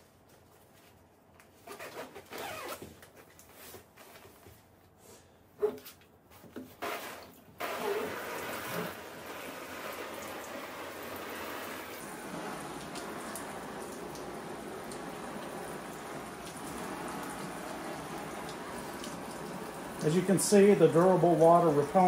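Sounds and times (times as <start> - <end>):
water spraying on a jacket: 1.6 - 2.8, 6.8 - 22.0
water splashing into a steel sink: 6.8 - 22.0.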